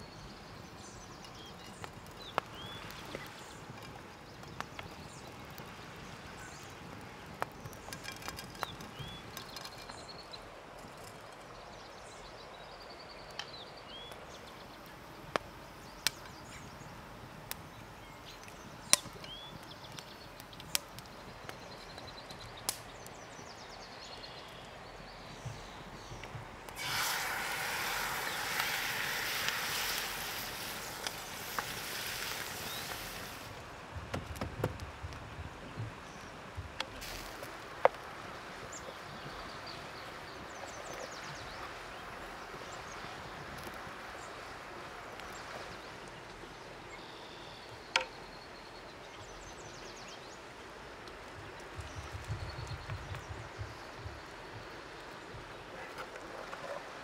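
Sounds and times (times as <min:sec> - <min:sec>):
wood fire crackling: 0:00.0 - 0:12.3, 0:13.0 - 0:46.9, 0:49.1 - 0:57.0
small birds chirping: 0:00.0 - 0:33.6, 0:35.6 - 0:50.7, 0:51.3 - 0:56.8
cream sizzling in hot pan: 0:26.7 - 0:33.6.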